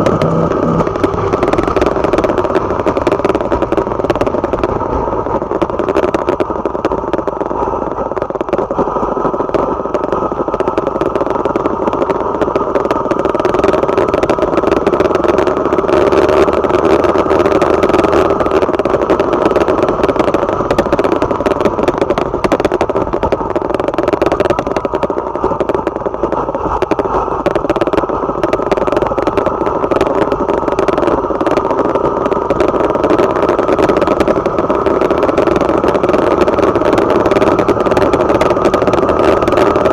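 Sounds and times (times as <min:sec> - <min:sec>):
small motorcycle engine running: 0:00.0 - 0:04.9
wind and road rumble: 0:00.0 - 0:39.9.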